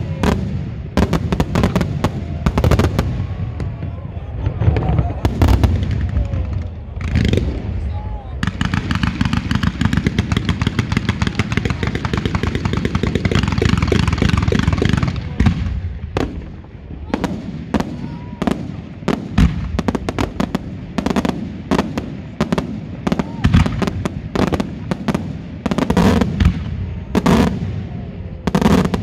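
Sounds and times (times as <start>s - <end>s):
rapid firework crackling: 8.4s - 29.0s.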